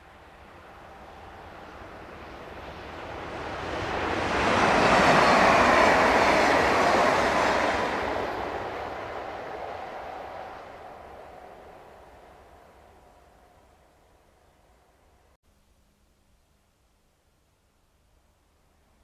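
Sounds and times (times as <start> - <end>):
train wheels rushing on rails: 0.0 - 13.2.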